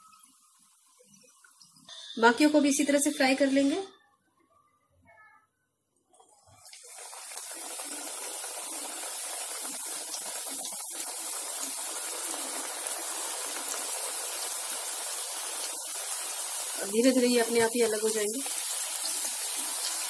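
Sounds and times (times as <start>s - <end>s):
dough sizzling in hot oil: 6.5s - 20.0s.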